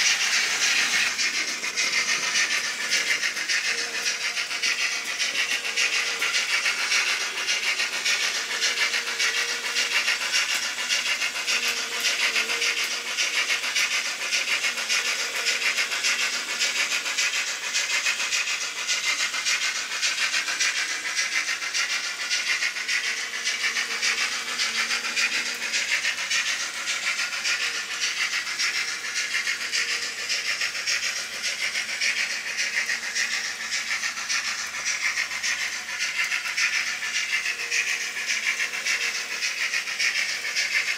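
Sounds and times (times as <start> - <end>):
model train rattling on track: 0.0 - 40.9.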